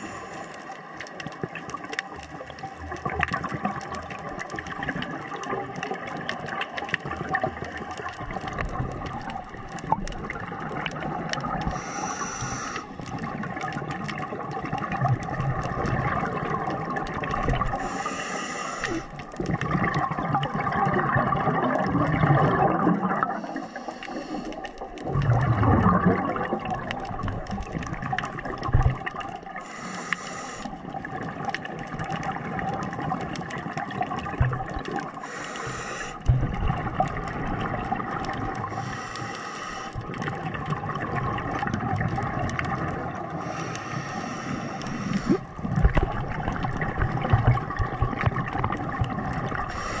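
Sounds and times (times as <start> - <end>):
regulator breath hiss: 0.0 - 0.6, 11.7 - 13.0, 17.8 - 19.1, 23.3 - 24.6, 29.6 - 30.8, 35.2 - 36.2, 38.7 - 40.0, 43.4 - 45.4, 49.7 - 50.0
exhaled air bubbling underwater: 0.0 - 50.0.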